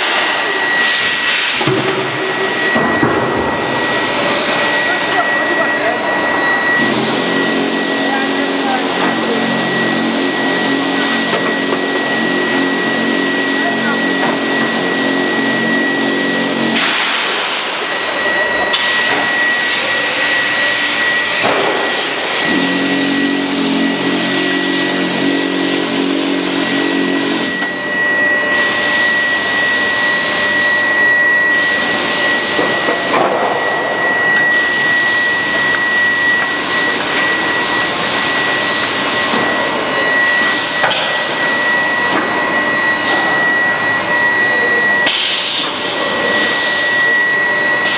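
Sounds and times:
machinery with high whine: 0.0s - 47.9s
low machine hum: 17.8s - 44.9s.

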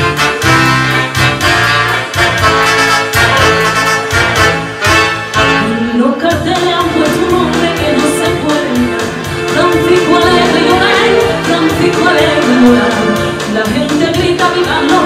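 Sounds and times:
brass band accompaniment: 0.0s - 15.0s
person singing: 5.7s - 15.0s.

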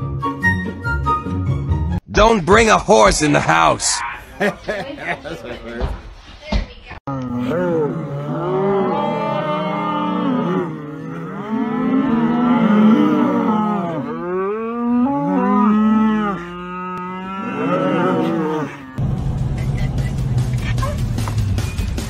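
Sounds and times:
cattle mooing: 7.1s - 19.0s.

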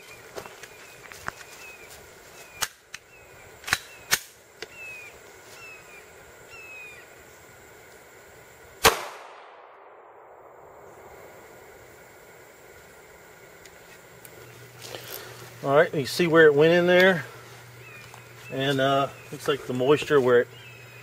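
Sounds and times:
pistol shot with echo: 8.8s - 11.1s.

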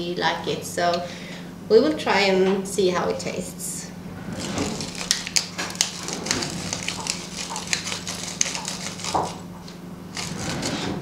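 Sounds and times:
pepper mill grinding: 4.7s - 10.6s.

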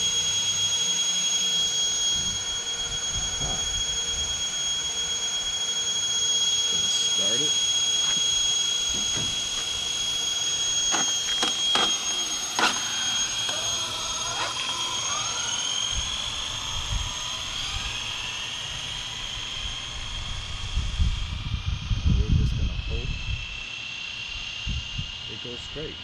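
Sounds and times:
rc car electric motor whine: 0.0s - 26.0s
low rumble: 19.4s - 23.6s.

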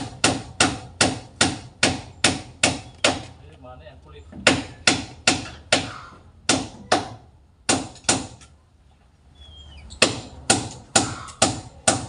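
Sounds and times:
hammer striking wood: 0.0s - 3.4s, 4.4s - 8.4s, 10.0s - 12.0s.

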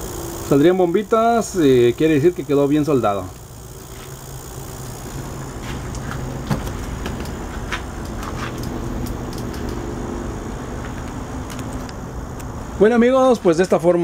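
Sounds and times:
refrigerator compressor hum: 0.0s - 14.0s
sharp click: 5.9s - 9.8s.

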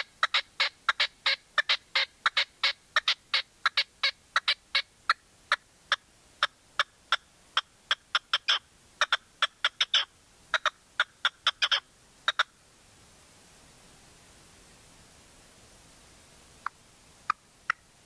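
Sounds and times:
partridge calling: 0.0s - 12.6s.

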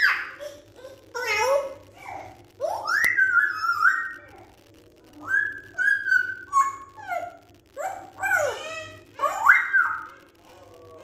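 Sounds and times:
parrot whistling and calling: 2.7s - 4.3s, 5.2s - 7.3s, 7.9s - 10.2s.

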